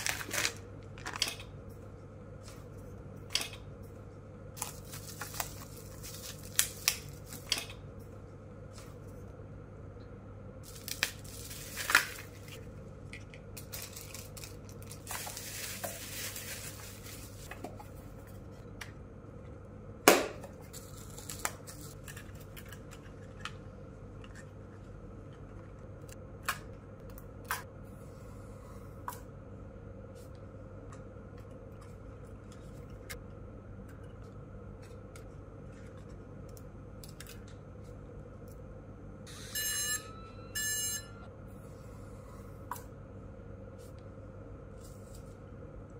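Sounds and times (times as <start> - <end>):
bubble wrap rustling: 0.0 - 1.2, 4.6 - 7.5, 10.6 - 12.6, 13.6 - 17.6.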